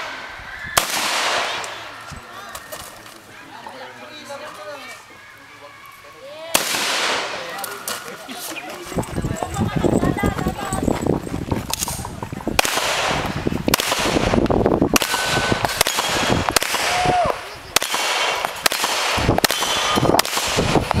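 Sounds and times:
handgun gunshots: 15.0 - 17.0, 17.8 - 20.7.

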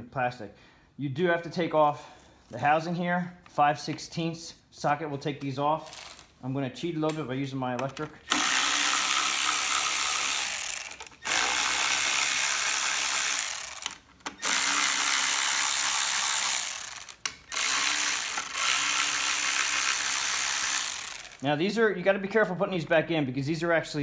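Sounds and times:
cordless electric ratchet running: 5.8 - 6.3, 8.3 - 21.4.

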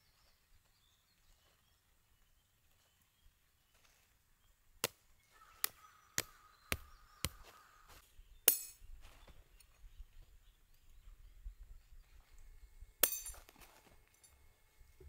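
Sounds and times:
bright metallic clink: 8.5 - 8.8, 13.0 - 14.4.

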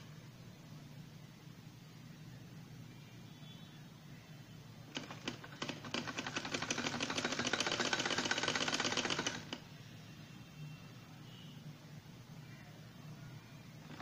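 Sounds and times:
sewing machine stitching: 4.9 - 9.6.

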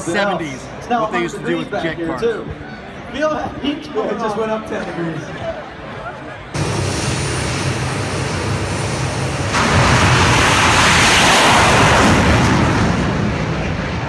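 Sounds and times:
jet engine roaring: 6.6 - 14.0.

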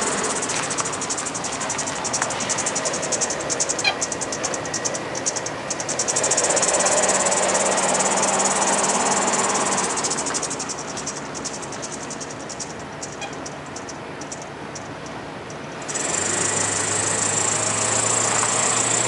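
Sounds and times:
truck engine pulling away: 0.0 - 13.0, 15.8 - 19.0
insects chirping: 0.0 - 19.0.

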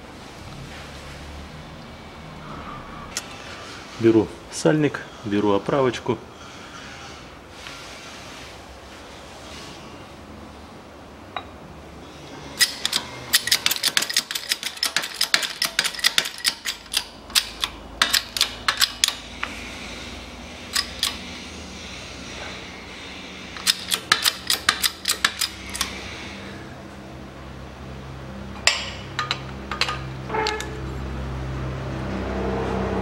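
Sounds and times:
sharp metallic clicks and clinks: 12.6 - 19.5, 20.7 - 21.3, 23.6 - 26.0.

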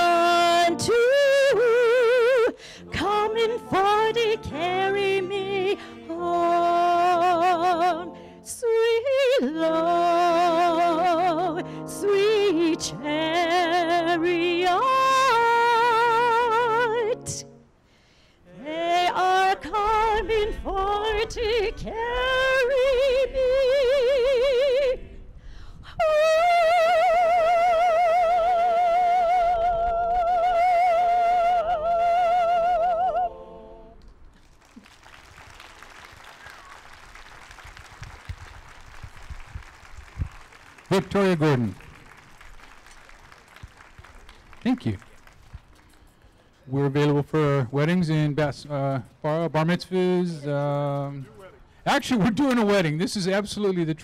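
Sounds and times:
woman singing operatically: 0.0 - 17.5, 18.5 - 25.1, 25.9 - 33.5.

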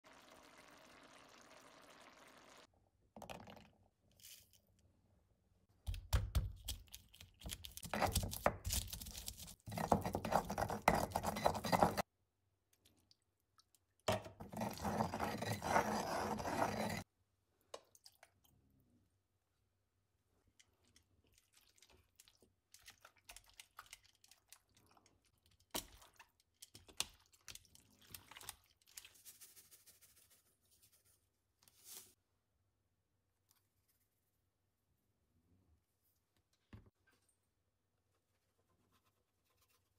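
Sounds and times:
stone pestle grinding: 14.4 - 17.0.

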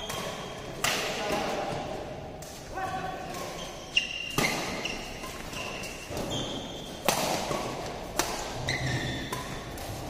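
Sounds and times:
rackets striking shuttlecock: 0.0 - 10.0
shoes squeaking on court: 3.3 - 7.8, 8.5 - 10.0.

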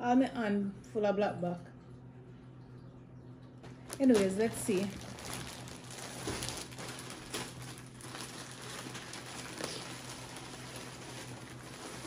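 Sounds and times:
plastic bag rustling and crinkling: 3.6 - 12.0.

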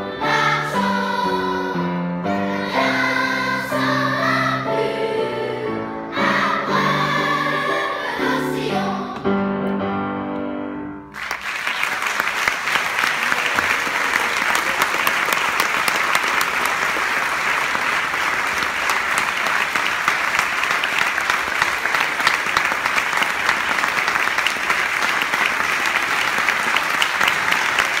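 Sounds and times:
audience applauding: 11.1 - 28.0.

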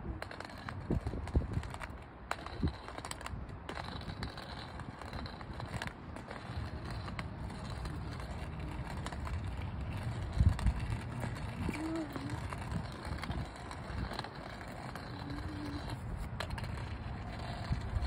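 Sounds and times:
cane tip rolling and clicking: 0.0 - 18.0.

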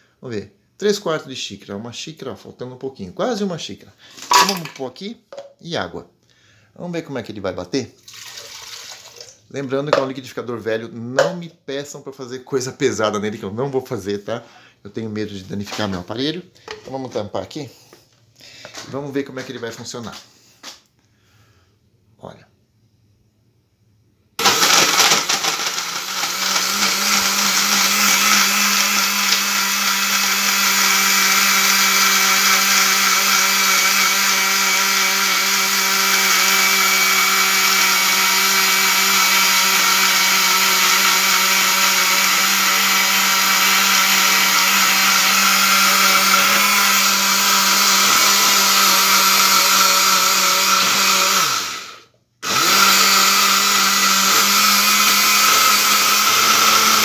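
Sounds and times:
blender motor running: 24.4 - 57.0.

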